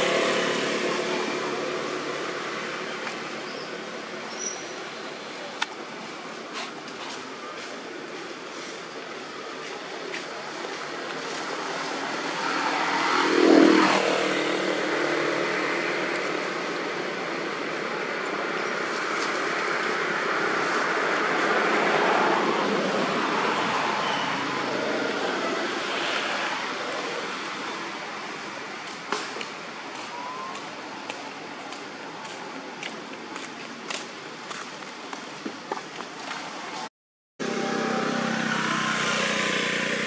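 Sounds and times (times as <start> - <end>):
vehicle passing by: 0.0 - 2.9, 11.3 - 17.2, 37.4 - 40.0
road traffic noise: 0.0 - 40.0.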